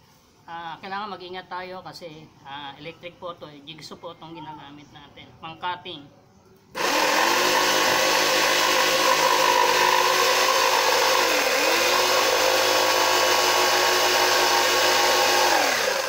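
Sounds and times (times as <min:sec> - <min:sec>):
electric jigsaw cutting wood: 0:06.8 - 0:16.0.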